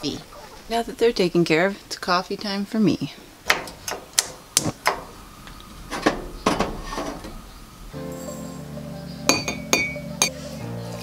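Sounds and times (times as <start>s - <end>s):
soft background music: 7.9s - 11.0s.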